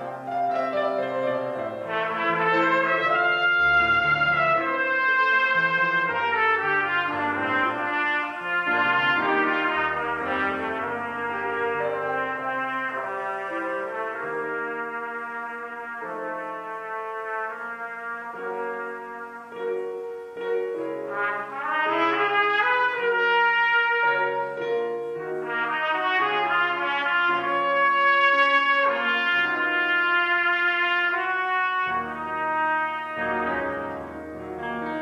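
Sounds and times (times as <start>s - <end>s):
grand piano accompaniment: 0.0s - 35.0s
trumpet solo melody: 0.0s - 35.0s.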